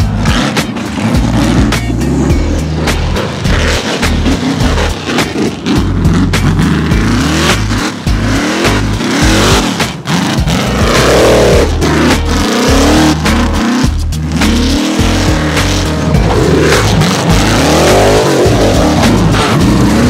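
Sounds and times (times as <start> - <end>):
buggy engine revving hard: 0.0 - 20.0
music with heavy bass line: 0.0 - 20.0.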